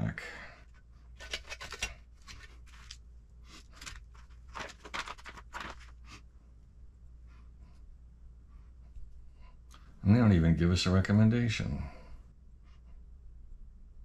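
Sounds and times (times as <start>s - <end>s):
paper pages rustling: 1.2s - 6.1s.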